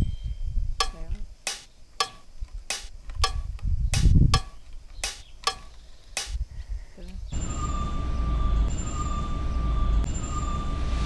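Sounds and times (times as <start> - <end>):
low machine rumble: 7.3 - 11.0.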